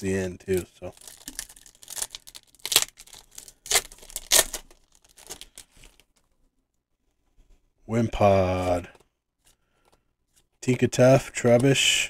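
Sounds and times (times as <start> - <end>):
foil pack tearing and crinkling: 0.5 - 6.0.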